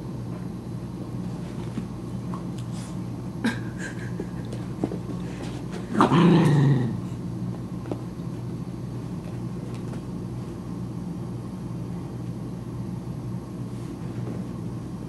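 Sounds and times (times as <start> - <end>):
steady low hum: 0.0 - 15.0
dog growling: 5.9 - 7.2.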